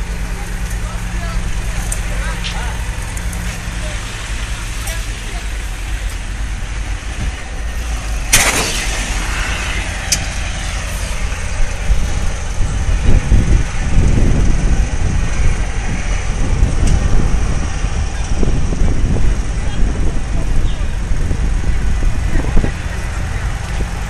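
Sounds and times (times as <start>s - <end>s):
fire engines idling: 0.0s - 24.0s
short hiss: 8.3s - 10.3s
sharp bang: 8.3s - 11.4s.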